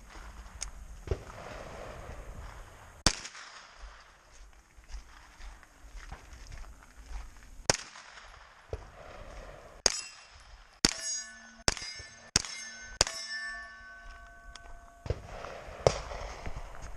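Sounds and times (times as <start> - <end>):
carbine gunshots: 1.1 - 4.2, 7.7 - 13.7, 15.0 - 16.7
steel targets clanging and ringing: 9.8 - 15.1.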